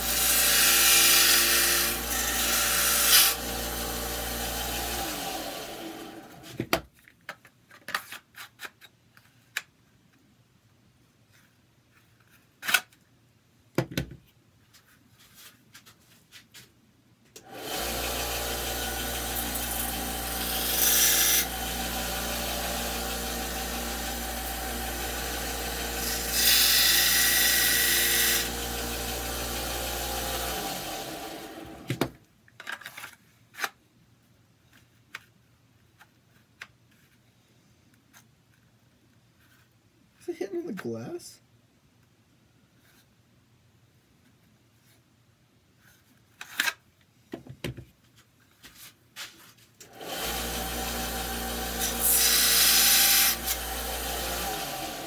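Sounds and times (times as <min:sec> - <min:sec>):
electric sander running: 0:17.5 - 0:31.9, 0:49.9 - 0:55.0.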